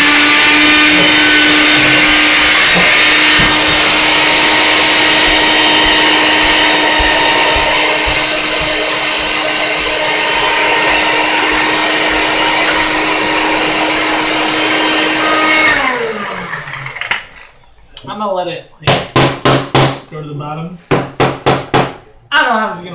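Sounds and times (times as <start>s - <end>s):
blender motor running: 0.0s - 17.3s.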